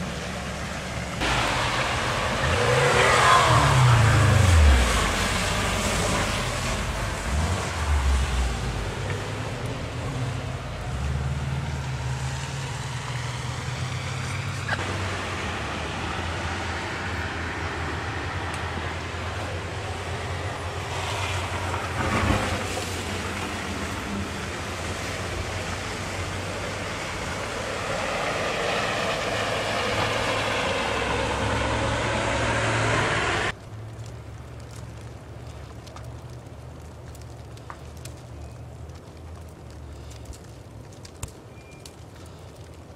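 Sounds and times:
car engines revving: 0.0s - 33.6s.

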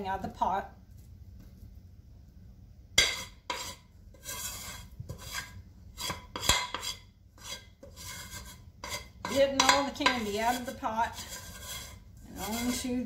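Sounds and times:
metal spoon scraping steel pot: 3.0s - 13.0s.

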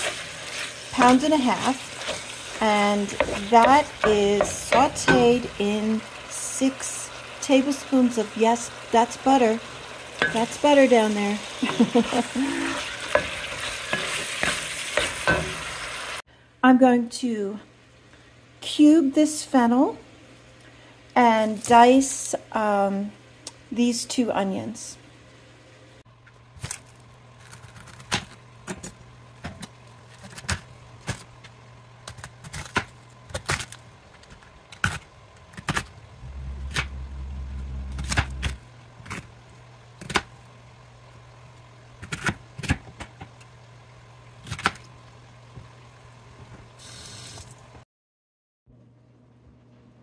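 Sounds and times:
steady low hum: 0.4s - 15.7s, 35.8s - 41.9s
low rumble: 36.1s - 38.9s.

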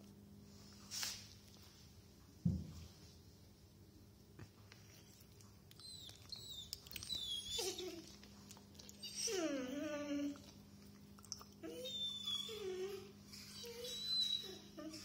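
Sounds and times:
dog whining: 5.7s - 10.7s, 11.5s - 15.0s.

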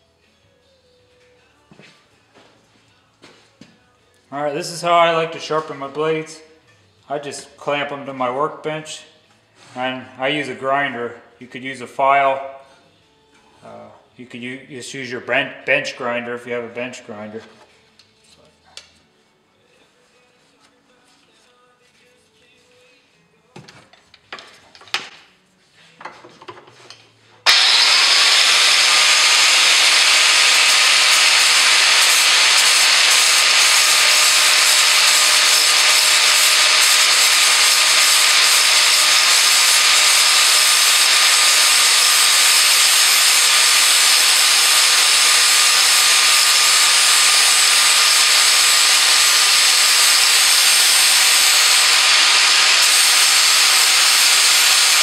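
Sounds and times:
angle grinder grinding metal: 27.4s - 55.0s.

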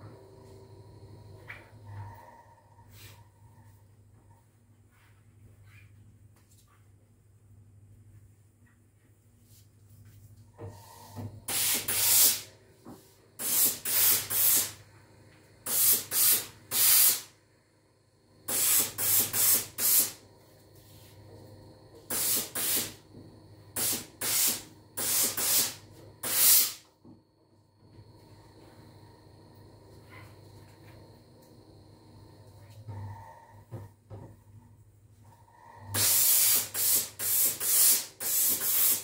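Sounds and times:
low steady hum: 0.0s - 11.5s, 26.9s - 36.0s
steam iron hissing blasts: 10.8s - 12.6s, 13.4s - 14.8s, 15.6s - 17.3s, 18.5s - 20.2s, 22.1s - 23.0s, 23.7s - 26.8s, 35.8s - 39.0s.

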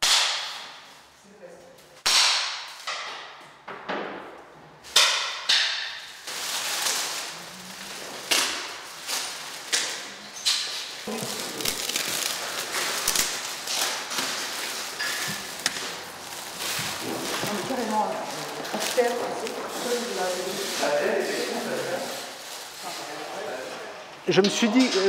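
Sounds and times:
plastic wrapping crinkling: 6.0s - 23.9s.

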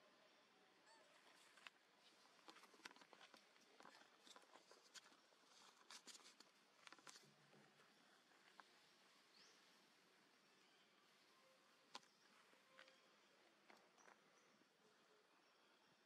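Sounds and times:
faint clicks and rustles: 0.9s - 10.3s.

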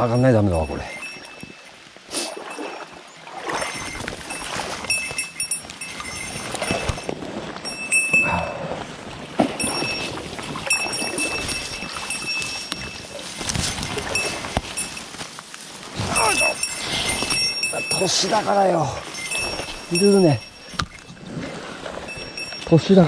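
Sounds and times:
rustling of vegetation and clothing: 0.0s - 23.0s.

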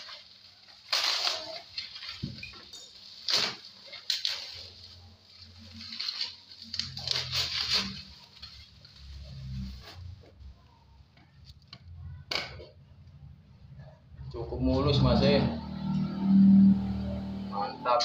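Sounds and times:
bubble wrap crinkling and tearing: 0.0s - 10.5s.

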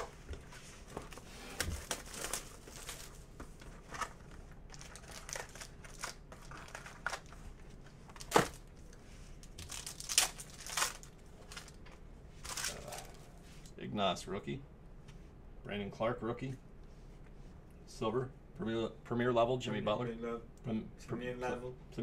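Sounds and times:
card pack wrapper crinkling and tearing: 1.6s - 3.2s, 4.0s - 7.4s, 9.4s - 11.8s, 12.4s - 13.2s.

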